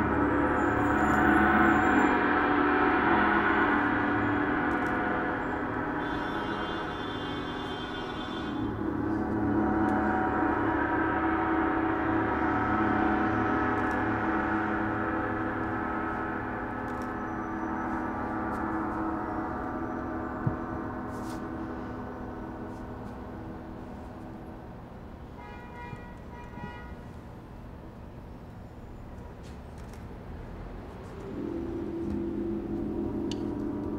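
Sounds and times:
gong ringing: 0:00.0 - 0:24.7, 0:31.3 - 0:33.9.

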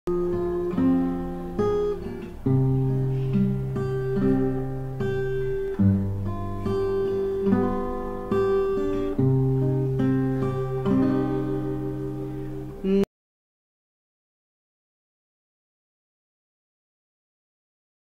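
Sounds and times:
acoustic guitar chords: 0:00.1 - 0:13.1.

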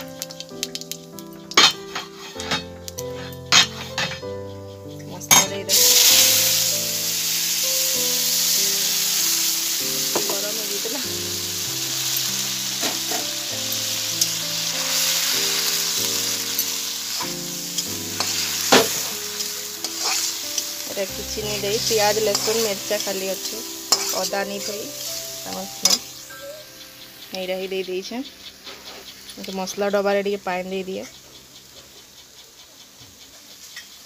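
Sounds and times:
paste sizzling in hot oil: 0:00.0 - 0:34.0
spoon clicking against pan: 0:15.4 - 0:34.0.

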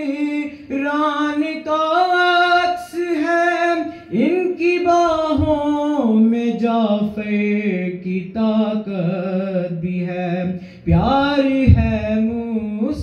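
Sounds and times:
man singing unaccompanied: 0:00.0 - 0:13.0
singer breathing: 0:00.5 - 0:00.7, 0:03.8 - 0:04.2, 0:10.5 - 0:10.9.

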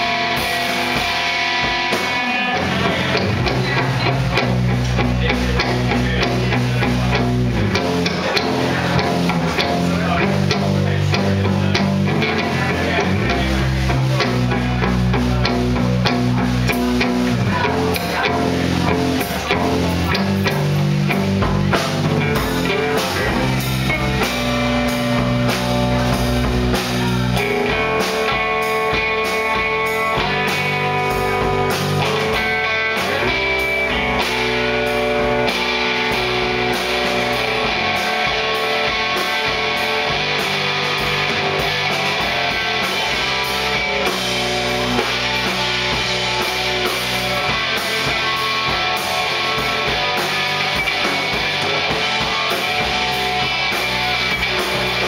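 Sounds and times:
rock band playing instrumental: 0:00.0 - 0:55.0.

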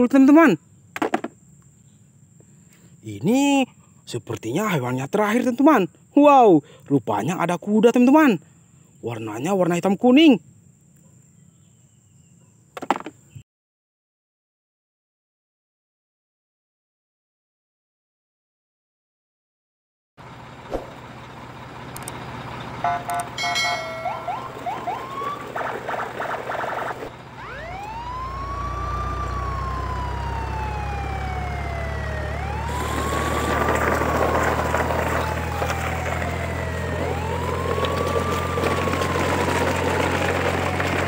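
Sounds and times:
low engine rumble: 0:20.2 - 0:41.0
electronic beeps and chirps: 0:22.8 - 0:24.8
wailing siren: 0:22.8 - 0:41.0.

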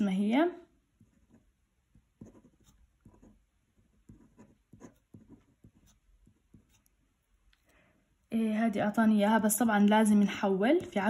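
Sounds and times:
pen scratching on paper: 0:01.0 - 0:07.4.

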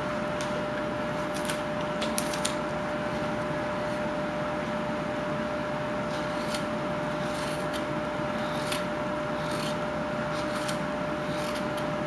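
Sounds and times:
steady background hum: 0:00.0 - 0:12.0
knife shaving wood: 0:06.0 - 0:12.0.

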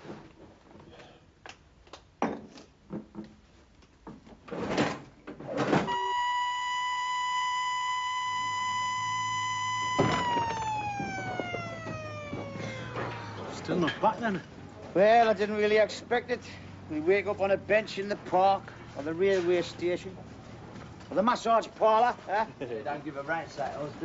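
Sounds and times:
work-site siren: 0:05.9 - 0:14.0.

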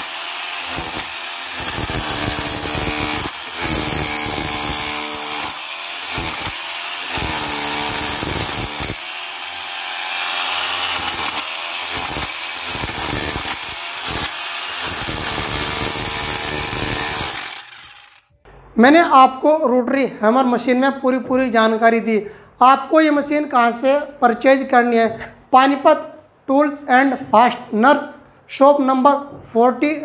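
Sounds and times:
rotary hammer chiselling brick mortar: 0:00.0 - 0:18.2.

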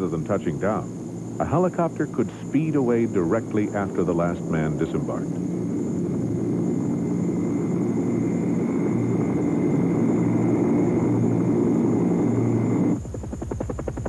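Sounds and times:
helicopter rotor and engine: 0:00.0 - 0:14.0
high whine: 0:00.0 - 0:14.0.

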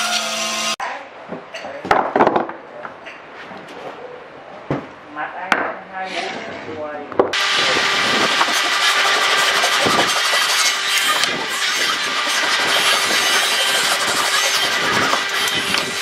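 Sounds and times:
power tool cutting wood: 0:00.0 - 0:00.8, 0:07.3 - 0:16.0.

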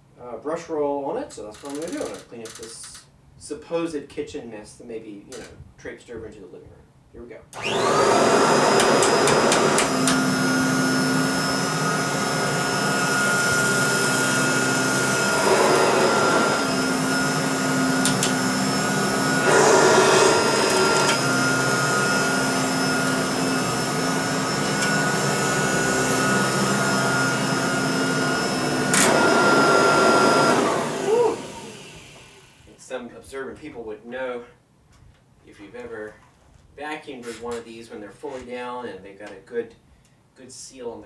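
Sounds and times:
upright vacuum cleaner whining: 0:07.6 - 0:32.7.

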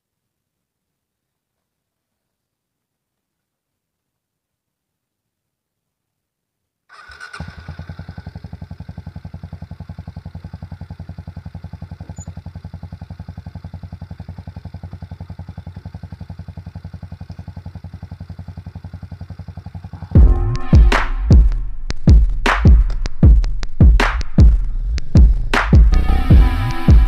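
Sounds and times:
engine starting and idling: 0:06.9 - 0:21.0.

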